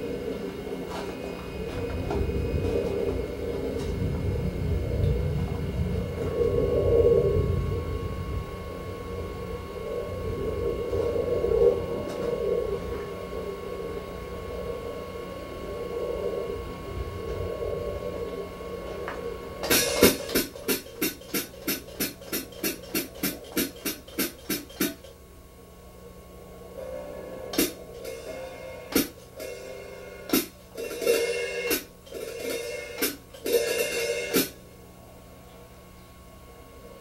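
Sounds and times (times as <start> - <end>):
cymbal crashes: 19.6 - 25.0, 27.6 - 34.6
drum strokes: 19.6 - 25.1, 27.5 - 34.6.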